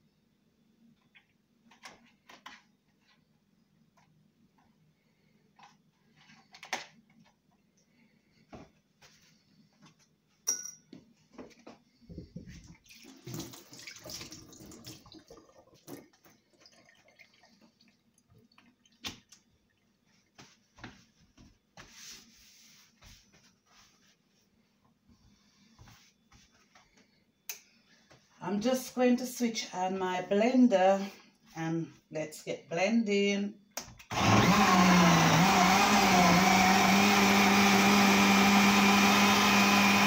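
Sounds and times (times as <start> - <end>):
tap water running into sink: 12.7 - 19.4.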